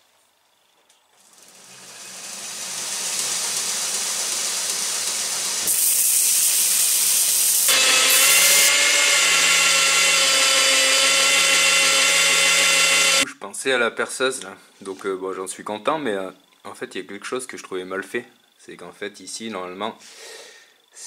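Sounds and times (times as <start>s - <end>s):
belt grinder grinding hiss: 1.2s - 13.2s.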